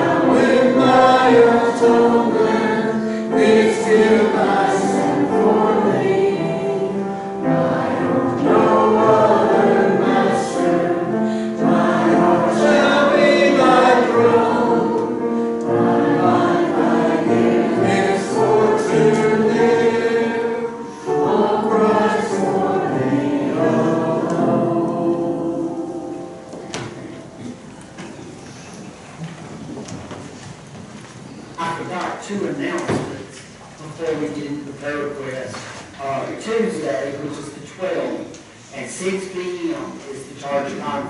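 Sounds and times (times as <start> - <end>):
congregation singing a hymn: 0.0 - 28.6.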